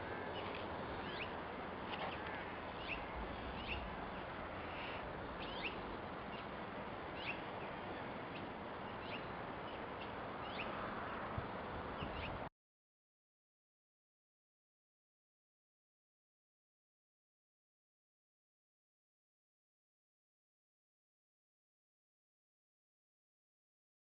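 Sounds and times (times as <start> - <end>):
small birds chirping: 0.0 - 12.5.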